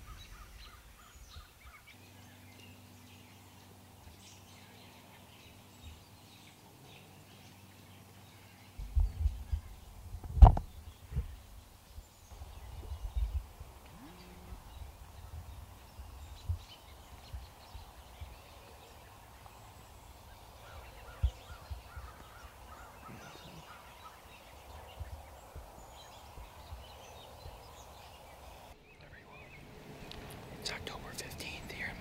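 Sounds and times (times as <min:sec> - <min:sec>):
wind bumps on microphone: 0:08.8 - 0:13.9.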